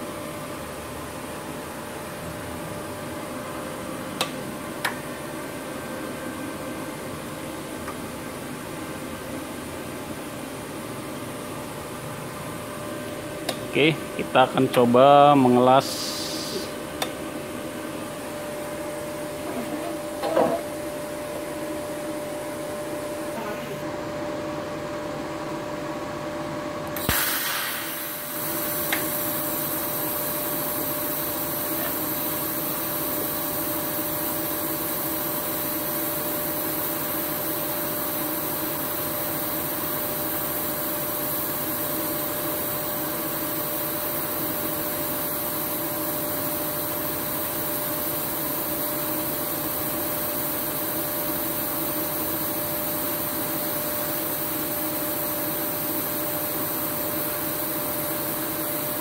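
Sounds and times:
electrical hum: 0:00.0 - 0:59.0
welding arc hissing: 0:15.3 - 0:16.8, 0:27.0 - 0:59.0
machine whine: 0:26.8 - 0:59.0
welding arc striking crack: 0:27.0 - 0:29.3.

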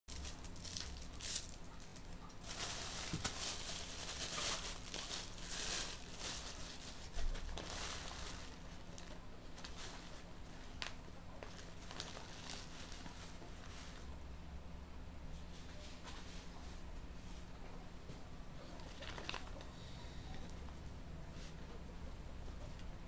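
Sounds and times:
plastic bag and paper crinkling: 0:00.1 - 0:14.2, 0:18.6 - 0:20.7.

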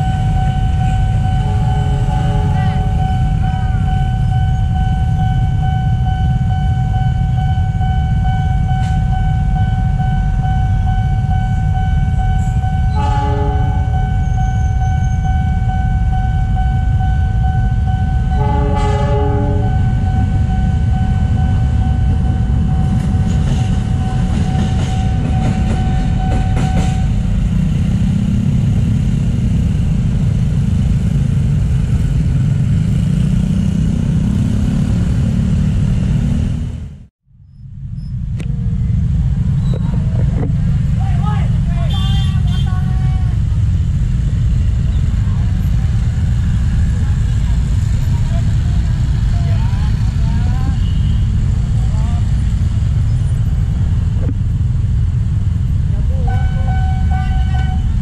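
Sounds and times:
level crossing alarm tone: 0:00.0 - 0:27.8, 0:56.2 - 0:58.0
low rumble: 0:00.0 - 0:58.0
train horn: 0:01.4 - 0:03.0, 0:12.4 - 0:14.8, 0:18.3 - 0:20.1, 0:56.2 - 0:58.0.

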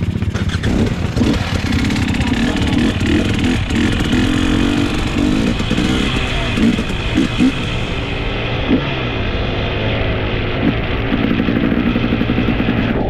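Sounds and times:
motorcycle engine running: 0:00.0 - 0:13.0
road and wind noise: 0:00.0 - 0:13.0.

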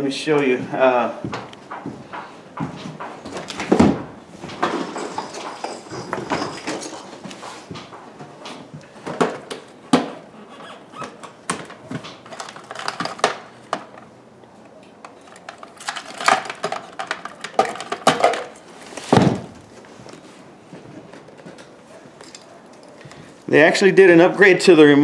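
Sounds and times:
objects knocking and clattering: 0:01.3 - 0:10.3, 0:11.0 - 0:20.1
heavy thump: 0:19.1 - 0:19.6.

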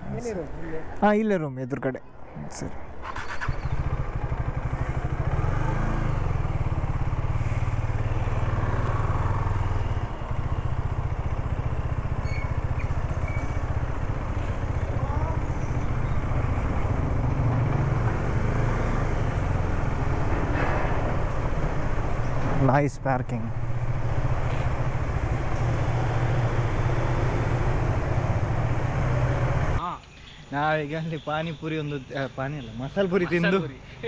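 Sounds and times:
motorcycle engine running: 0:03.0 - 0:29.8.

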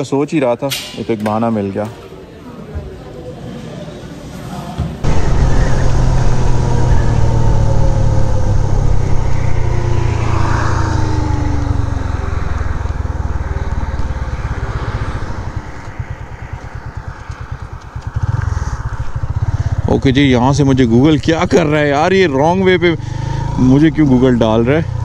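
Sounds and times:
wind noise: 0:05.0 - 0:19.8
motorcycle engine running: 0:05.0 - 0:25.0.

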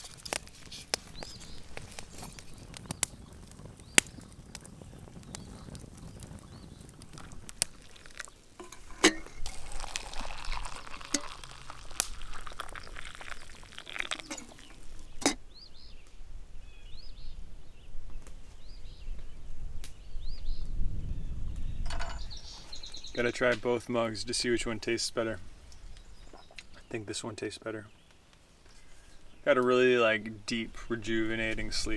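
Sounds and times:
birds chirping: 0:00.0 - 0:31.9
water pouring into plastic mug: 0:07.0 - 0:15.2.

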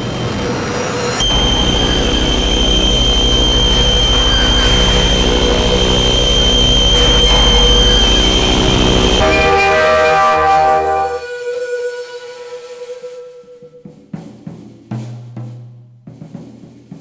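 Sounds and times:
low buzzing pulse: 0:00.0 - 0:11.5
dense wall of noise: 0:00.0 - 0:11.6
thin high whine: 0:00.0 - 0:13.6.

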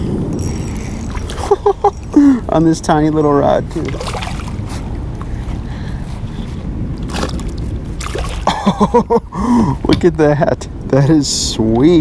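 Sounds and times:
steady low rumble: 0:00.0 - 0:12.0
fish thrashing and splashing: 0:00.4 - 0:02.1, 0:03.7 - 0:04.9, 0:07.0 - 0:08.6.

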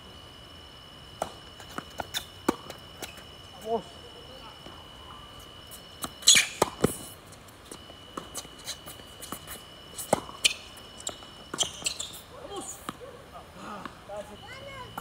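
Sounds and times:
faint high whine: 0:00.0 - 0:15.0
tennis ball hits and bounces: 0:06.0 - 0:07.0, 0:09.3 - 0:12.2.

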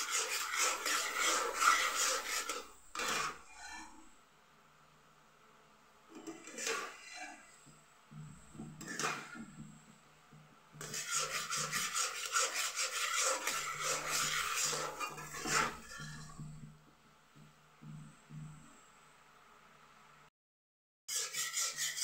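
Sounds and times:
spatula scraping a pan: 0:00.0 - 0:04.2, 0:06.1 - 0:09.8, 0:10.7 - 0:16.7, 0:21.1 - 0:22.0.

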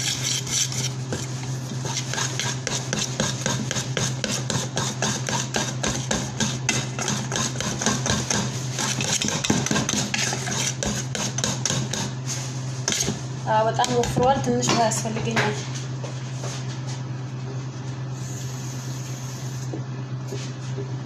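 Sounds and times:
whisk beating batter in metal bowl: 0:00.0 - 0:13.2.

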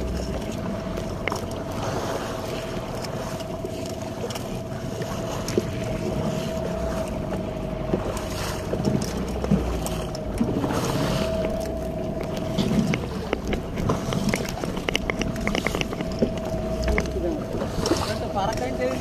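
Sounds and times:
boat motor humming: 0:00.0 - 0:19.0
wind on microphone: 0:00.0 - 0:19.0
knocks and clicks of gear: 0:07.3 - 0:17.2.

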